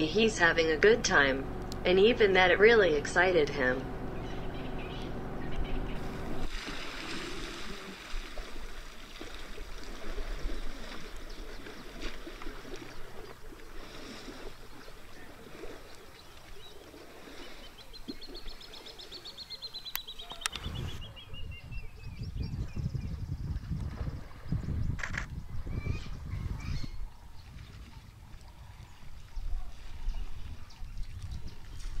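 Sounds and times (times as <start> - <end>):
bird trilling: 3.6 - 6.5
elephants splashing in water: 6.0 - 19.5.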